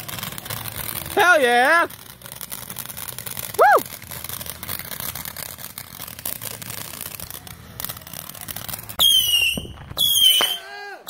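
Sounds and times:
firework crackling hiss: 0.0s - 10.7s
shrill firework whistle: 3.5s - 3.9s, 9.0s - 10.8s.

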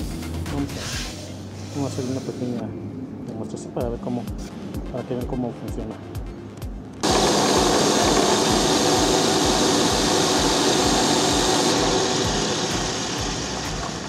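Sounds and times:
electric drill running: 7.0s - 14.0s.

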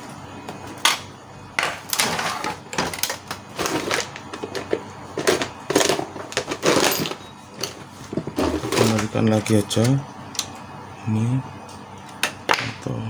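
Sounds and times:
plastic parts scraping and rattling: 1.9s - 9.6s.

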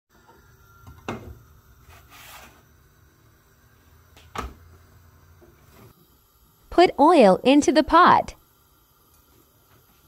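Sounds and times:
low background hum: 0.3s - 10.0s
brief scrape: 1.9s - 2.6s.

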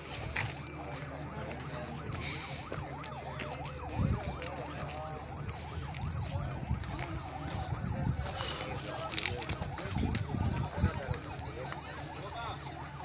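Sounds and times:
siren yelping: 0.0s - 13.0s.

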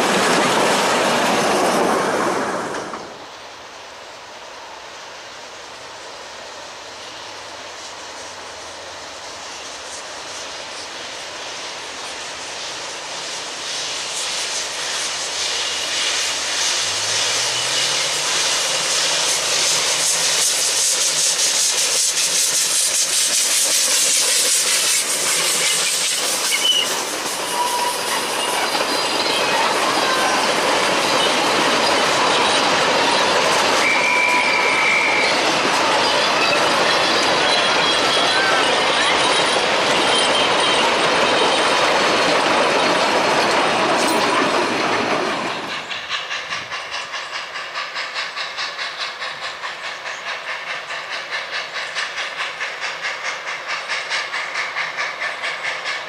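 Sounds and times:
train wheels clattering over rail joints: 0.0s - 3.3s, 13.0s - 56.0s
wheel flanges squealing: 24.6s - 48.4s.

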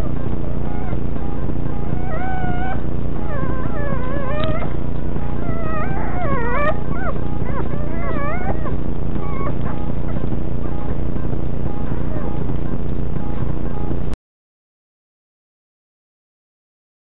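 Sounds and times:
puppies whimpering and squealing: 0.0s - 10.4s, 11.8s - 12.6s
loud steady low hum: 0.0s - 14.2s.

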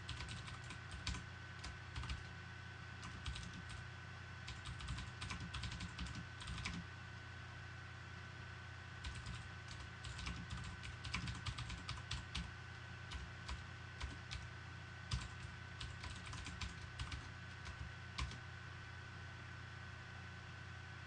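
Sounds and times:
computer keyboard typing: 0.0s - 2.3s, 3.0s - 3.8s, 4.5s - 6.8s, 9.0s - 12.5s, 13.1s - 14.5s, 15.1s - 18.4s.

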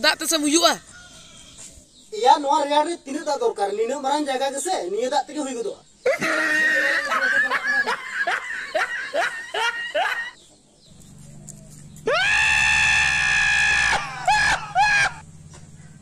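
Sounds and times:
person shrieking with laughter: 6.1s - 10.4s, 12.1s - 15.2s
long held scream: 12.1s - 15.2s.

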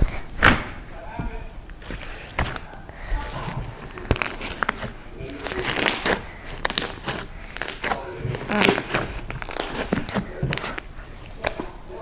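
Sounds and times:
slime squishing and crackling: 0.0s - 12.0s.

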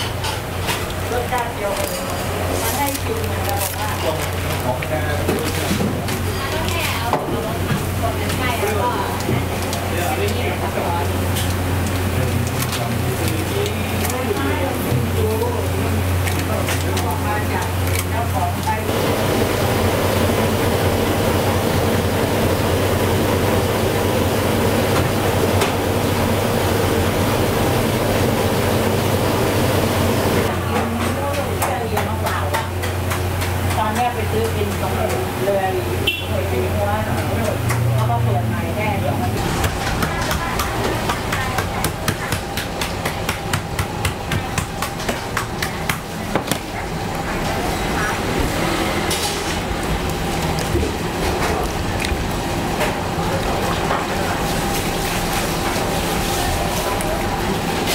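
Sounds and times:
workshop background noise: 0.0s - 57.9s
loud machine drone: 18.8s - 30.7s, 46.7s - 57.9s.

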